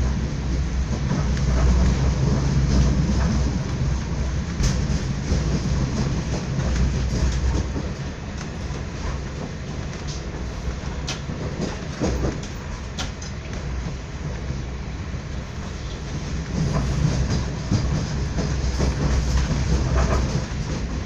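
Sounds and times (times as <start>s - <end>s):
train rumble inside carriage: 0.0s - 21.0s.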